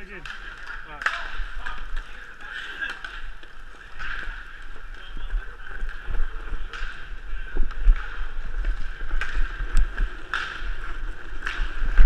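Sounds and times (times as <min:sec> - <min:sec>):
skate wheels rolling: 0:00.0 - 0:12.0
sharp clacks: 0:05.8 - 0:12.0.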